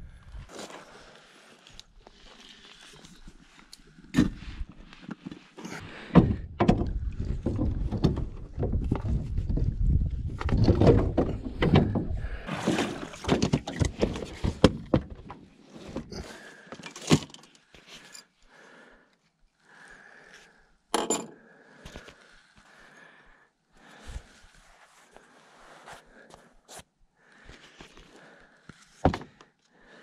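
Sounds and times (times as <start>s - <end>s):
boat seat clunking and scraping: 10.3s - 16.2s.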